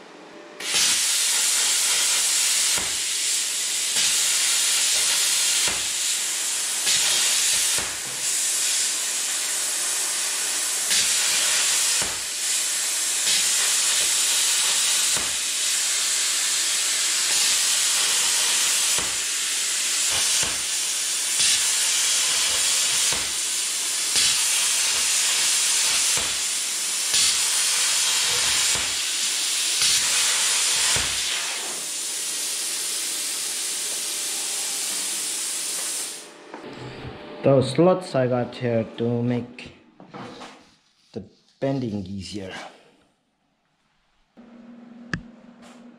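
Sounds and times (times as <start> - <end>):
plasma cutter hissing: 0.6 - 36.4.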